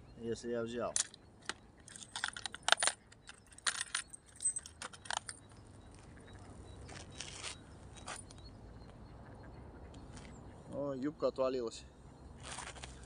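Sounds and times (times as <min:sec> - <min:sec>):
fishing tackle clicking and clinking: 0:00.8 - 0:07.0
soft rustle: 0:05.3 - 0:09.0, 0:12.4 - 0:13.0.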